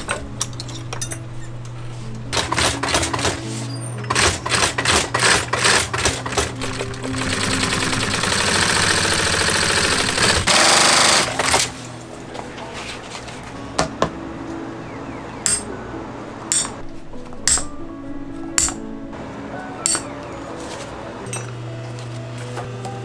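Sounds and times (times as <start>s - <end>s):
sewing machine stitching: 2.3s - 11.7s.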